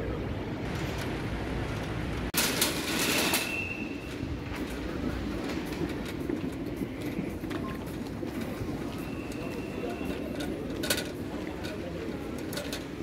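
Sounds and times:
luggage trolley rattling over tiles: 0.7s - 13.0s
high squeal: 3.2s - 4.2s.

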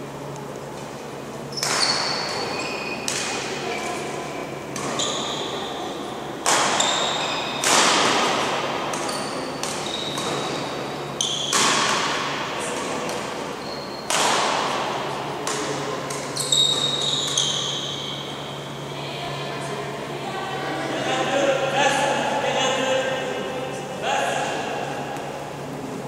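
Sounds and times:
shoe squeaks on court floor: 1.5s - 3.1s, 4.9s - 5.7s, 6.7s - 7.6s, 9.0s - 11.6s, 13.6s - 14.1s, 16.3s - 18.3s
racket hitting shuttlecock: 1.6s - 2.4s, 3.0s - 3.6s, 4.7s - 5.0s, 6.4s - 10.7s, 11.3s - 13.4s, 14.1s - 17.8s.

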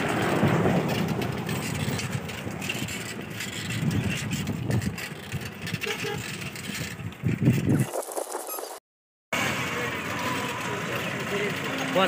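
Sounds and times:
wind buffeting microphone: 0.0s - 8.6s
road traffic rumble: 0.0s - 12.0s.

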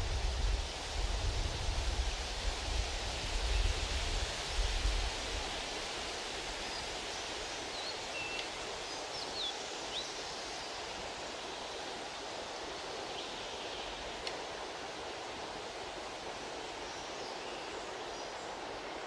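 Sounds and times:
faint click: 8.3s - 8.6s, 14.2s - 14.4s.

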